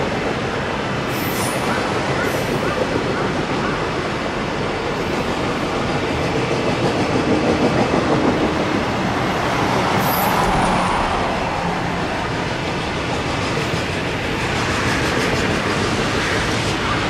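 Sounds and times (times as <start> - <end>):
train wheels rumbling on rails: 0.0 - 17.0
high squeal: 9.4 - 12.3.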